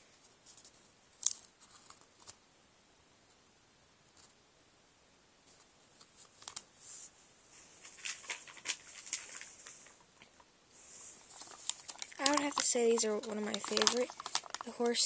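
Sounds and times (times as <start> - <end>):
sticker sheets rustling: 0.2 - 2.4, 5.5 - 10.0, 10.8 - 15.0.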